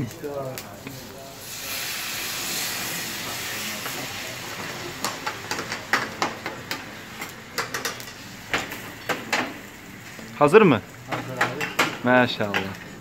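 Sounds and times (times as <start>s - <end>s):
flames hissing: 0.0s - 13.0s.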